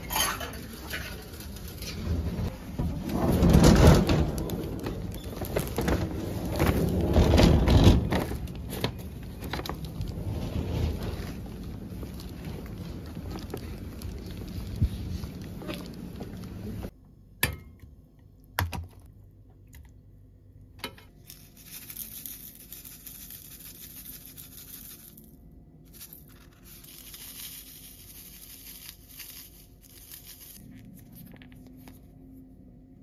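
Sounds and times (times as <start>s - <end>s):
outdoor street noise: 0.0s - 16.9s
packets rustling and tearing: 4.2s - 16.9s, 25.9s - 32.0s.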